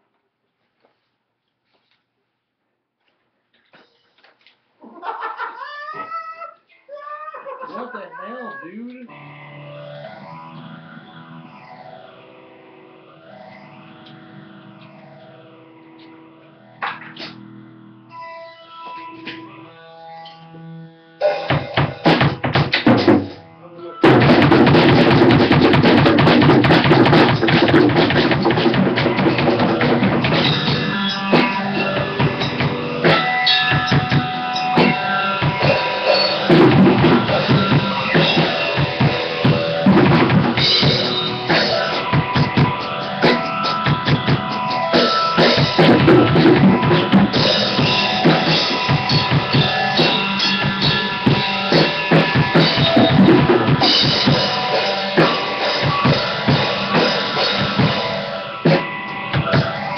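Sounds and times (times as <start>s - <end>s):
drum kit playing: 21.2s - 59.9s
cymbals ringing: 30.4s - 40.0s.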